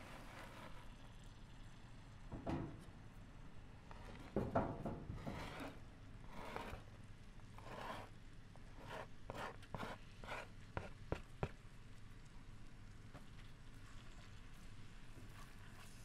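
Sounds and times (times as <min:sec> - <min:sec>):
utensil scraping and knocking pan: 0:03.9 - 0:05.8.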